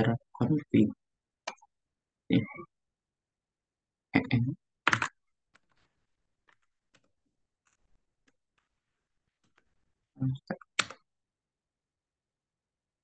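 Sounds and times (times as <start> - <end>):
computer keyboard clicks: 4.9 - 5.2, 10.8 - 11.0.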